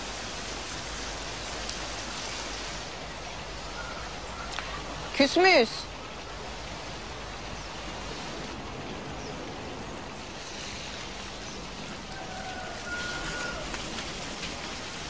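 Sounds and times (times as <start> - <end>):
water jet spraying: 0.0 - 8.8.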